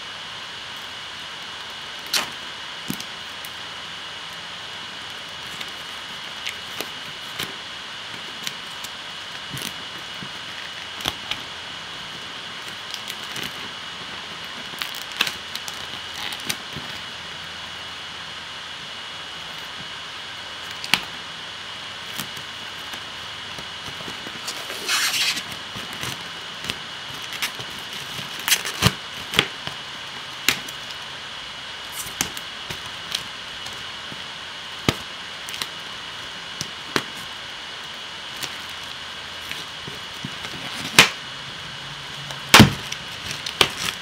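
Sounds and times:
packaging crinkling: 23.9s - 26.3s.

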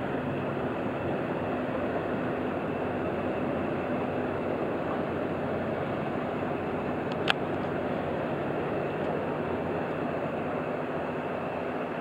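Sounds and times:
ship diesel engine rumble: 0.0s - 12.0s.

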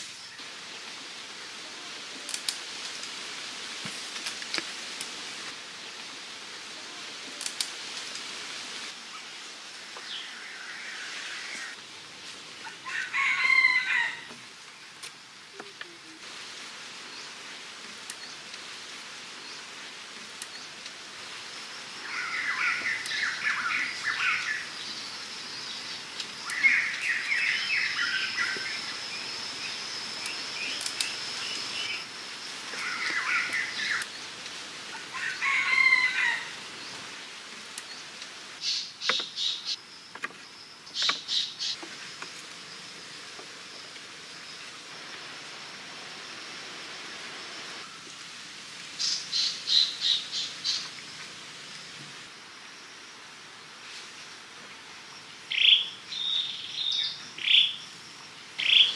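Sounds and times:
steady hiss: 0.0s - 58.9s
birds calling: 21.7s - 37.2s, 37.8s - 43.4s, 55.5s - 57.9s, 58.5s - 58.9s.

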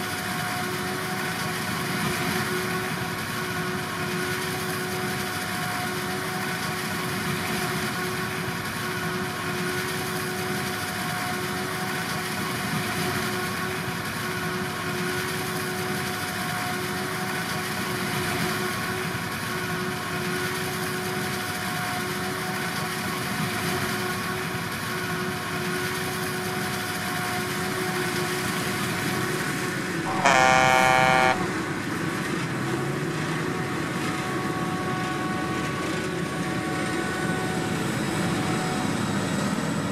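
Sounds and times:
harvesting machinery droning: 29.5s - 39.9s
vehicle horn: 30.1s - 31.6s.

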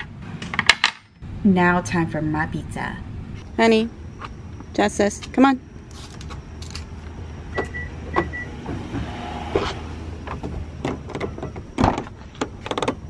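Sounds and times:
short electronic beeps: 7.5s - 8.5s.

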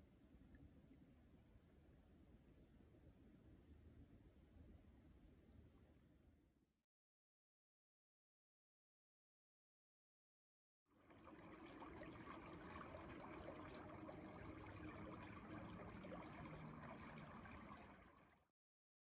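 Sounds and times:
brook trickling: 11.0s - 18.5s.

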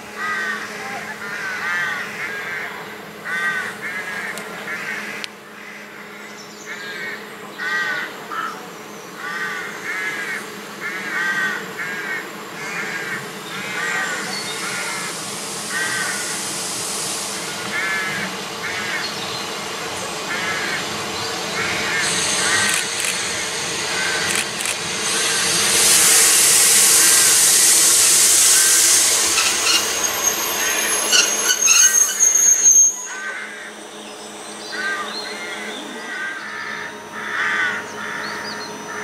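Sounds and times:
train approaching: 0.0s - 39.0s
crow cawing: 0.2s - 0.6s, 1.2s - 6.0s, 9.2s - 13.2s, 36.0s - 38.4s.

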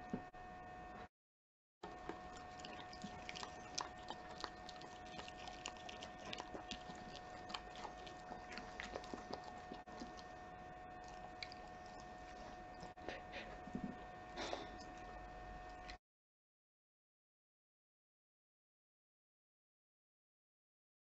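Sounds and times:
dog chewing meat: 1.8s - 16.0s
faint steady hum: 1.8s - 16.0s.

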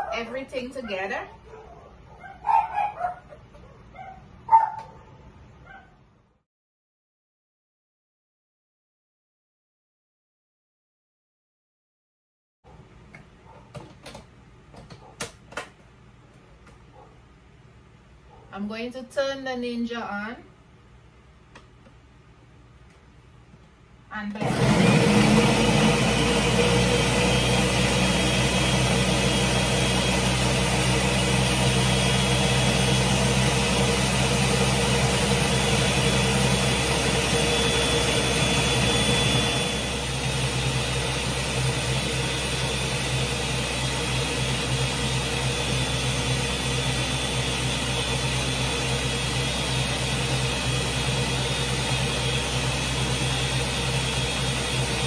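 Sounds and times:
blender motor running: 24.3s - 55.0s.

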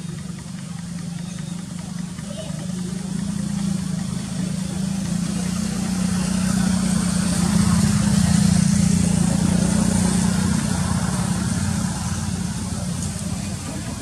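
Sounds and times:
engine droning: 0.0s - 14.0s.

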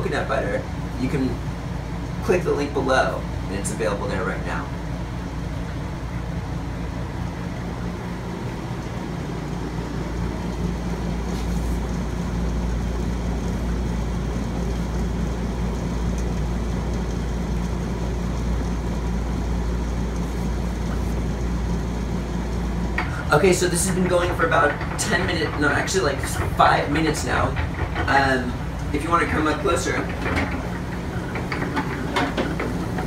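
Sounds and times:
stone rollers rumbling crushing nuts: 22.1s - 33.0s.

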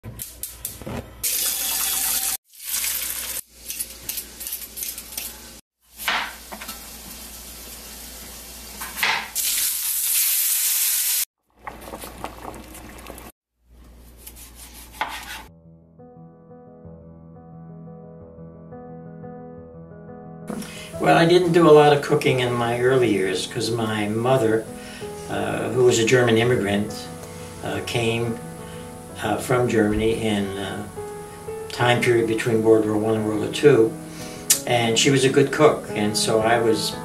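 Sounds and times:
food sizzling in a pan: 1.2s - 4.4s, 5.3s - 11.3s
knife cutting on cutting board: 14.1s - 15.5s
soft music: 14.8s - 37.0s.

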